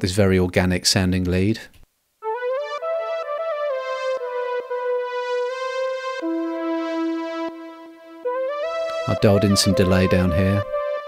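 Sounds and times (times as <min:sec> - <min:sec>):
synthesizer lead melody: 0:02.2 - 0:11.0.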